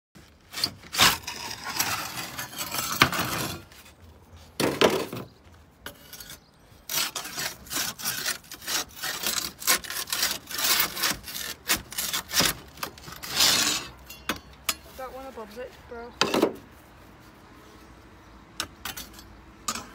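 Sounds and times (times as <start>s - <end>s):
metal ripper scraping on slate: 0.4s - 4.0s, 4.6s - 15.6s, 18.6s - 19.9s.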